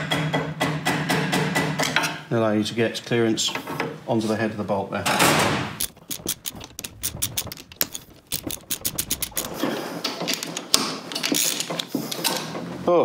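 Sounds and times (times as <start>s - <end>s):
socket ratchet clicking: 5.8s - 9.6s.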